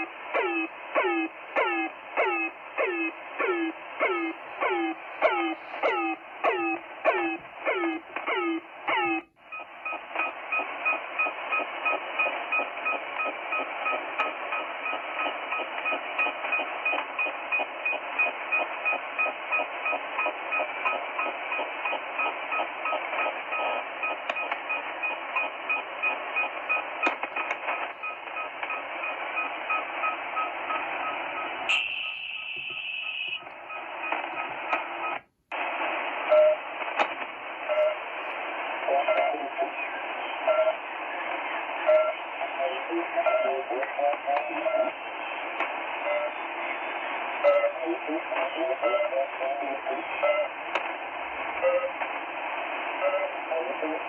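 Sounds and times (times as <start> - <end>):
radio band hiss: 0.0 - 54.0
faint regular beeps: 0.5 - 35.3, 36.3 - 36.6, 37.6 - 38.0, 38.9 - 40.8, 41.8 - 42.3, 47.4 - 47.8, 51.6 - 52.0
short tone: 31.7 - 33.4.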